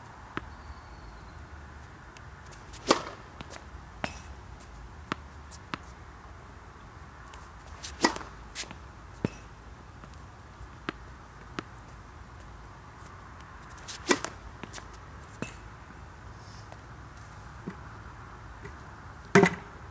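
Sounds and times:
racket striking tennis ball: 2.5s - 4.4s, 7.3s - 9.5s, 13.7s - 15.6s, 19.3s - 19.6s.

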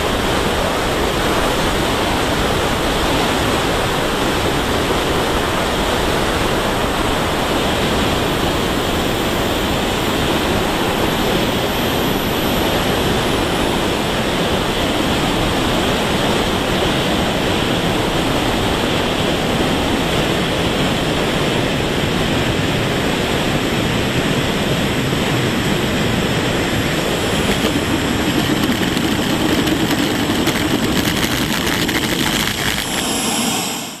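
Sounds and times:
faint high whine: 0.0s - 22.8s, 23.8s - 34.0s
jet turbine and airflow roar: 0.0s - 34.0s.

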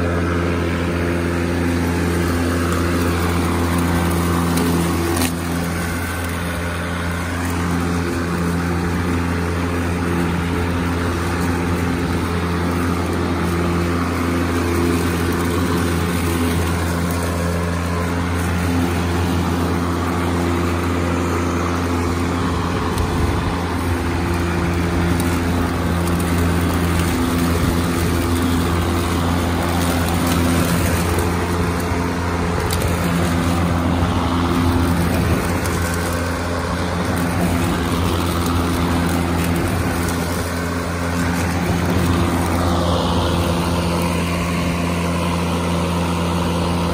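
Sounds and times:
electric lawn mower humming: 0.0s - 46.9s.

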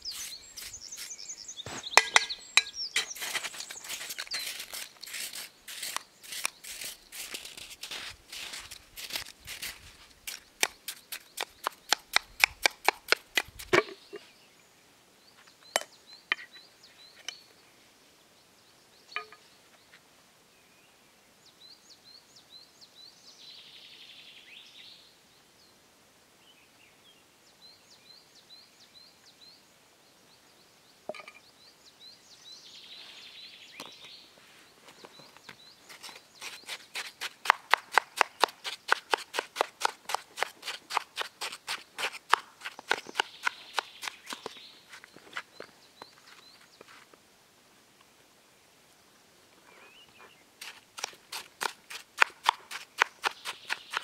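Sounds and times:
metal spoon scraping snow: 0.0s - 11.5s.

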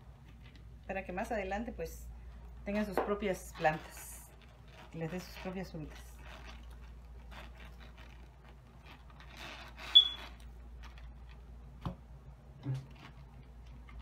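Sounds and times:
fruit scraping and tearing: 3.4s - 11.5s
sharp squeak: 9.4s - 10.4s.

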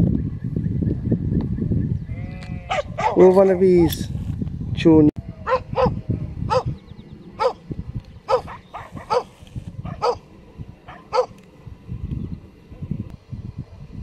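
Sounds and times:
low steady rumble: 0.0s - 14.0s
dog barking: 2.7s - 3.4s, 5.4s - 6.7s, 7.4s - 7.6s, 8.3s - 10.2s, 10.9s - 11.3s.

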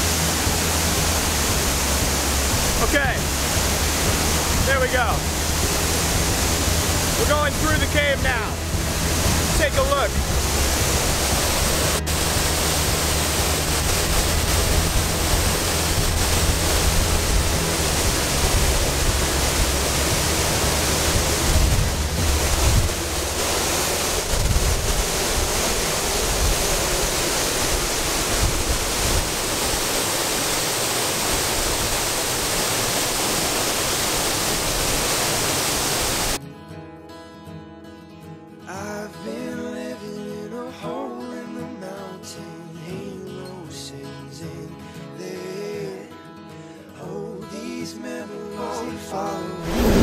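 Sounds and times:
acoustic guitar music: 0.0s - 27.8s, 36.4s - 50.0s
waterfall roaring: 0.0s - 36.4s, 49.6s - 50.0s.

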